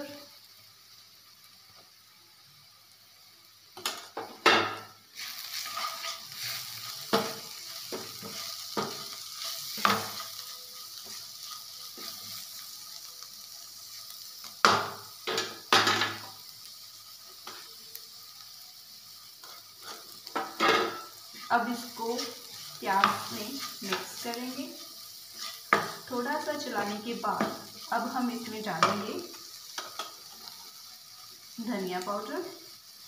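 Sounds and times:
food sizzling in oil: 0:00.0 - 0:33.0
utensil scraping a pan: 0:05.2 - 0:10.2, 0:25.3 - 0:26.1.

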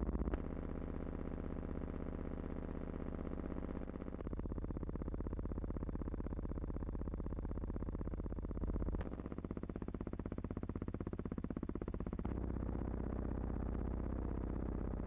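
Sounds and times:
buzzing drone with flutter: 0:08.5 - 0:15.0.

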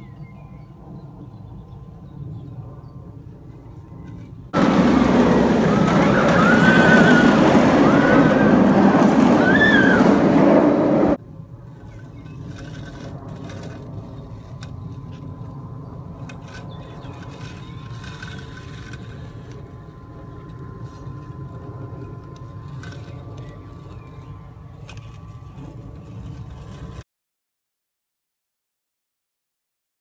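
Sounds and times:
robotic lawn mower running: 0:03.4 - 0:27.0.

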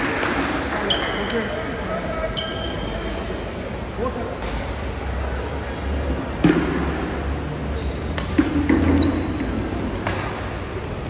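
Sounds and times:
rackets striking shuttlecock: 0:06.4 - 0:07.2, 0:08.1 - 0:10.7.

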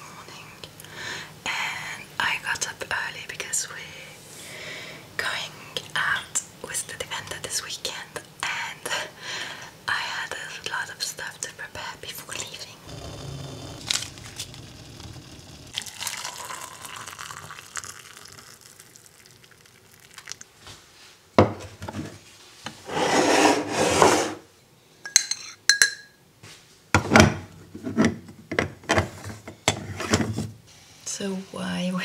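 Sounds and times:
metal rubbing and scraping: 0:12.9 - 0:15.7, 0:22.8 - 0:24.4.

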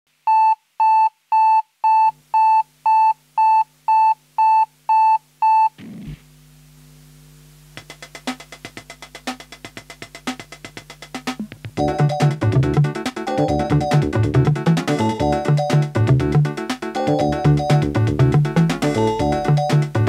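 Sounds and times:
fast ticking beat: 0:07.8 - 0:20.0.

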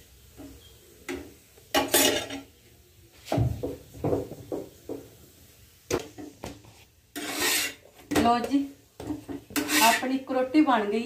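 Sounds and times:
spatula scraping and knocking griddle: 0:00.4 - 0:02.5, 0:05.9 - 0:10.3.

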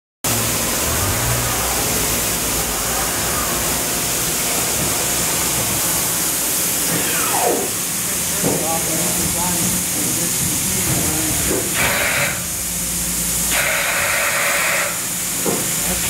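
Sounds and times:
falling whine: 0:00.3 - 0:08.2
machinery hiss: 0:00.3 - 0:16.0.

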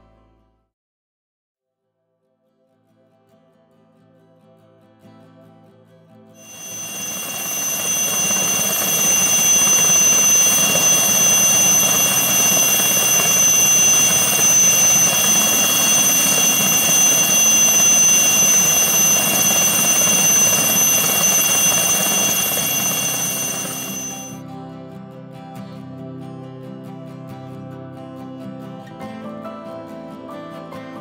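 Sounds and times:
helicopter engine and rotor drone: 0:06.4 - 0:24.4.

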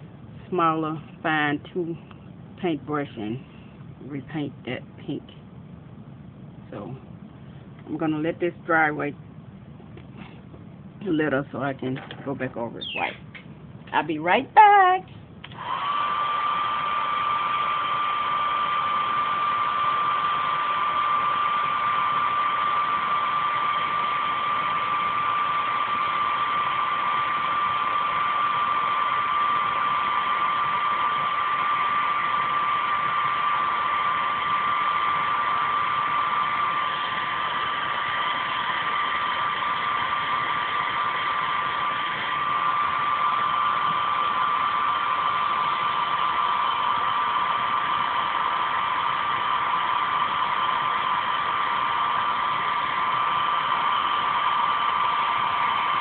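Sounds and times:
hair dryer blowing: 0:15.5 - 0:56.0.

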